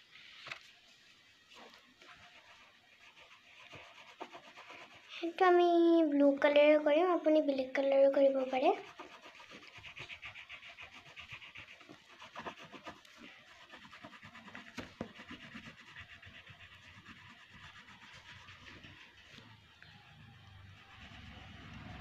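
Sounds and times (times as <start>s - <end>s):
colouring tool scratching paper: 1.6s - 5.6s, 8.0s - 19.6s, 20.7s - 22.0s.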